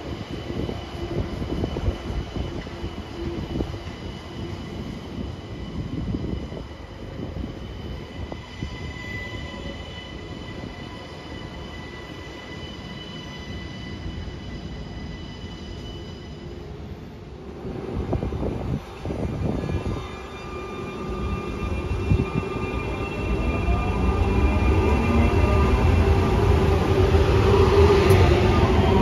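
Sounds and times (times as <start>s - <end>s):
train rumble: 13.4s - 29.0s.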